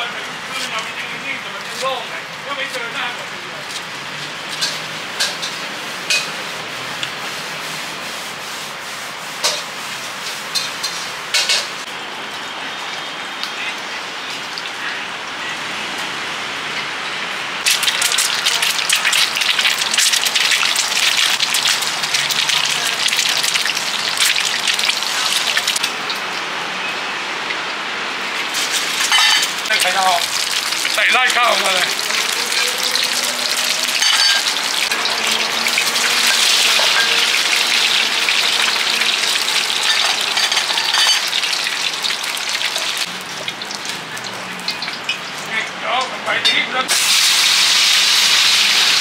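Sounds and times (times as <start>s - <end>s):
egg sizzling in hot oil: 17.6s - 26.3s, 28.4s - 45.4s, 46.9s - 49.0s.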